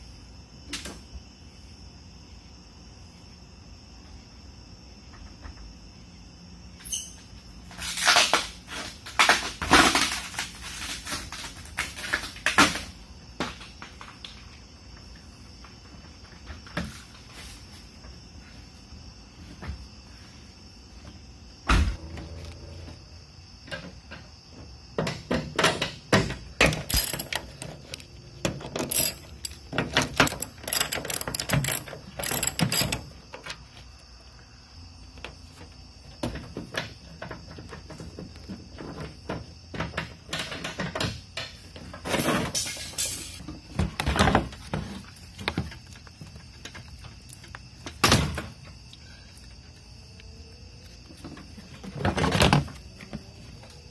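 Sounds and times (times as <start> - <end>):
tools and car parts clanking: 25.0 - 33.6, 36.2 - 48.7.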